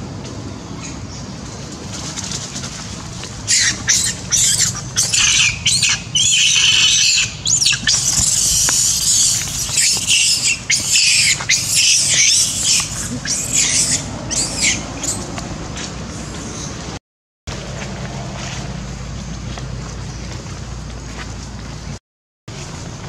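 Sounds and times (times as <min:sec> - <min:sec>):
young monkey screaming: 0:03.5 - 0:15.2.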